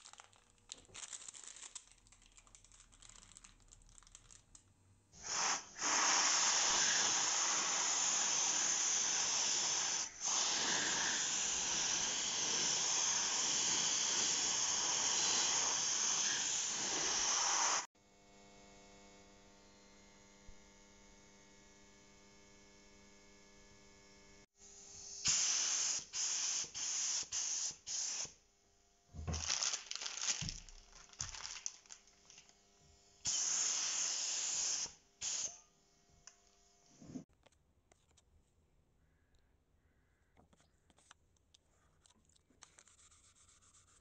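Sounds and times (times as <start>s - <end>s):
spray paint can spraying: 5.2s - 17.9s, 25.2s - 28.4s, 33.3s - 35.6s.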